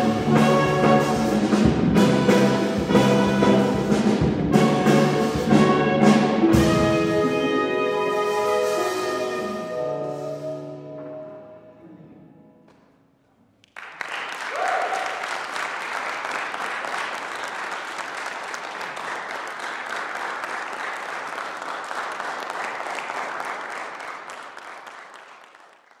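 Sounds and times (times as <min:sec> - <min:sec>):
jazz combo playing: 0:00.0 - 0:11.9
audience applause: 0:13.6 - 0:26.0
audience cheer: 0:14.0 - 0:19.1.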